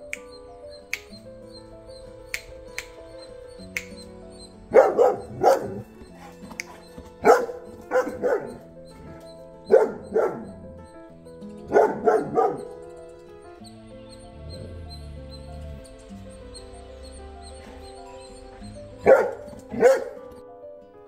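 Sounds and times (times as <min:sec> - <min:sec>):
large dog barking: 0:04.6 - 0:12.9, 0:17.0 - 0:20.4.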